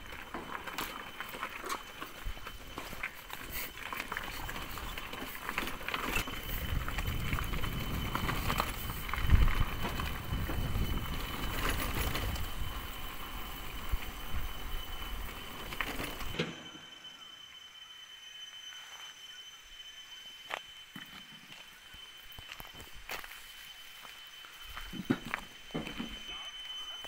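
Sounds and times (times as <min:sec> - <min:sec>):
motorcycle riding on gravel: 0:00.0 - 0:16.4
wind: 0:00.0 - 0:27.0.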